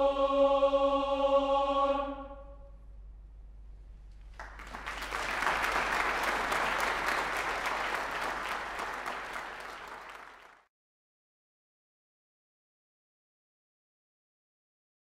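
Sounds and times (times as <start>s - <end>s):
audience applauding: 4.3s - 10.7s.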